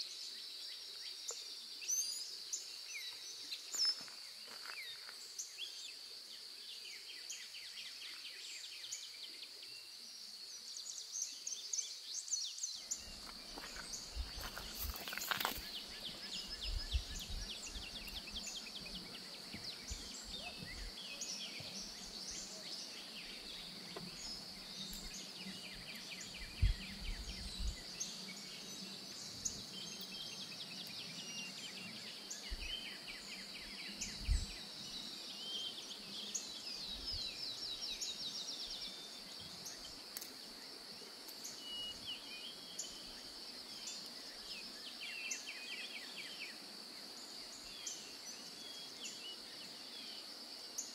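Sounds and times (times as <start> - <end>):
birds chirping and trilling: 10.9 - 40.3
high-pitched insect buzz: 13.1 - 20.9.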